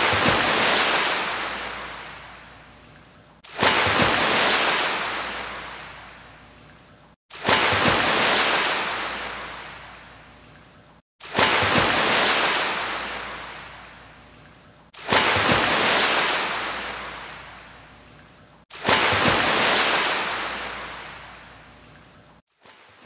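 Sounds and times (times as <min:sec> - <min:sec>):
ocean waves breaking on shore: 0:00.0 - 0:02.6, 0:03.5 - 0:06.4, 0:07.3 - 0:10.1, 0:11.2 - 0:14.0, 0:15.0 - 0:17.8, 0:18.7 - 0:21.5.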